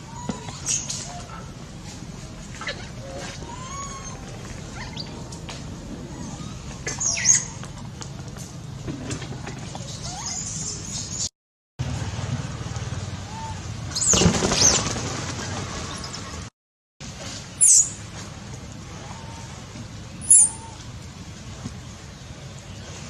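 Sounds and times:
young monkey squealing: 0:00.0 - 0:01.3, 0:02.6 - 0:05.3, 0:06.0 - 0:07.6, 0:09.9 - 0:10.8, 0:20.2 - 0:20.8.

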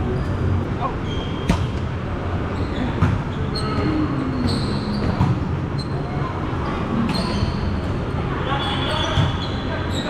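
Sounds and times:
sneaker squeaks on court: 0:01.0 - 0:01.8, 0:02.6 - 0:06.0, 0:06.9 - 0:07.8, 0:08.6 - 0:10.0.

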